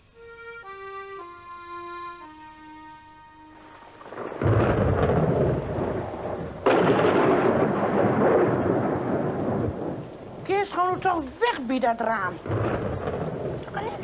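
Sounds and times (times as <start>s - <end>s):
accordion music: 0.0s - 4.3s
thunder clap and rumble: 4.0s - 11.1s, 12.2s - 14.0s.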